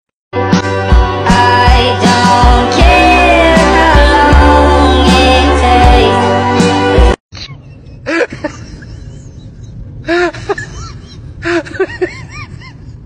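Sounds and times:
music: 0.4 - 7.2.

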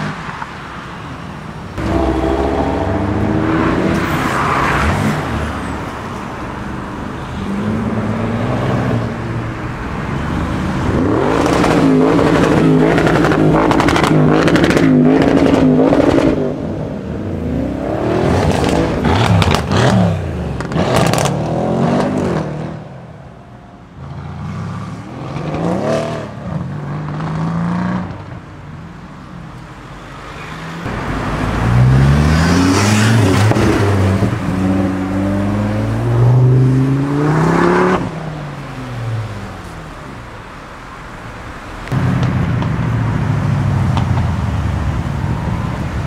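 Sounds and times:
cars accelerating through gears: 1.8 - 5.4.

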